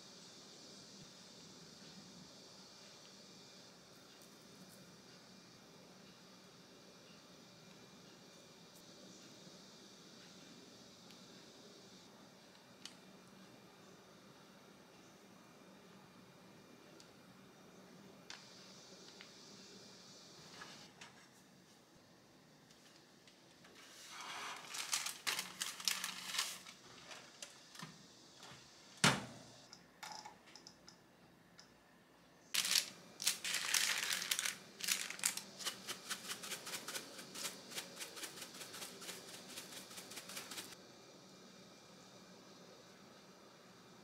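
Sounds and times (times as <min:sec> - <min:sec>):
parchment paper crinkling: 0:23.8 - 0:27.4, 0:32.6 - 0:40.8
oven door shutting: 0:29.0 - 0:29.5.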